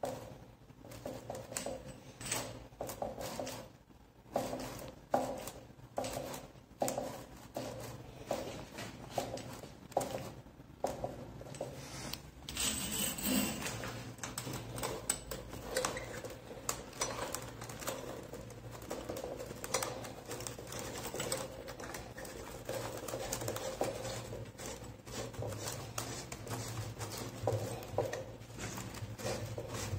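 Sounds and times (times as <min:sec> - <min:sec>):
metal clicks taps and rattles: 0:14.1 - 0:24.7.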